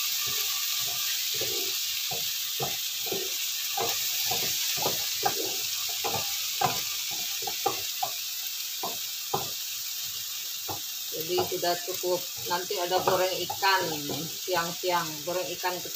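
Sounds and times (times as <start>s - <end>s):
vegetables sizzling in a frying pan: 0.0s - 15.9s
wooden spatula scraping a pan: 0.2s - 8.2s, 10.7s - 14.8s.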